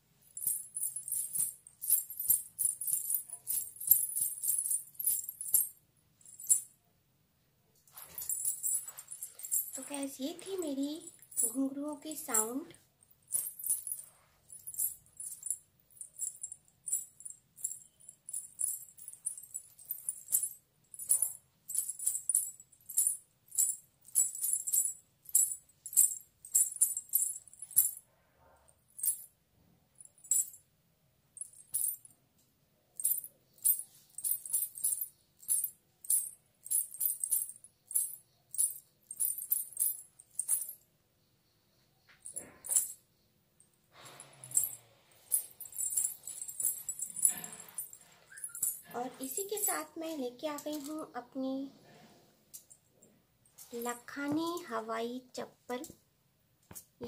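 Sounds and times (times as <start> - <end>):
anklet bells jingling: 0.3 - 6.7, 7.9 - 28.0, 30.0 - 30.6, 33.0 - 40.8, 42.0 - 43.0, 44.0 - 51.1, 53.5 - 54.9.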